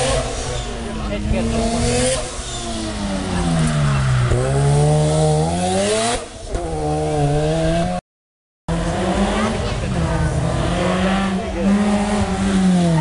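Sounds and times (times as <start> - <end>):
rally car engine revving: 0.0 - 8.0, 8.7 - 13.0.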